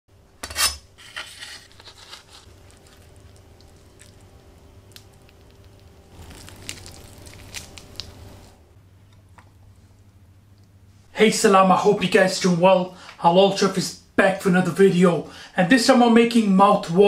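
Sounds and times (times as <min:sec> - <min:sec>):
knife cutting crunchy tortilla: 0:00.4 - 0:04.1, 0:05.0 - 0:08.2
tortilla tearing and crackling: 0:01.2 - 0:08.6.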